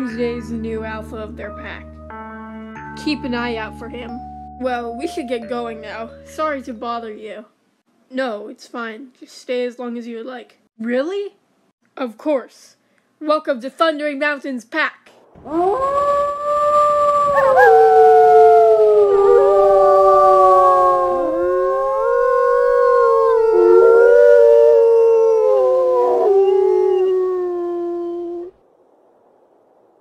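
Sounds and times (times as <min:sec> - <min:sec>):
wolves howling in chorus: 0:15.5 - 0:28.5.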